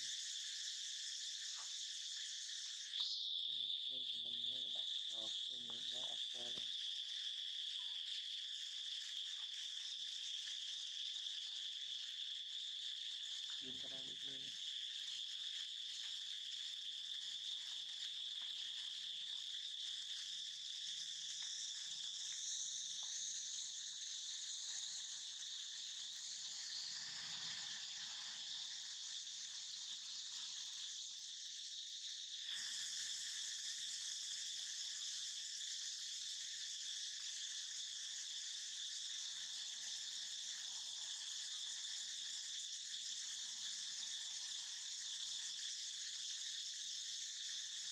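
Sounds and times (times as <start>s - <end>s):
insects chorus: 0.0s - 47.9s.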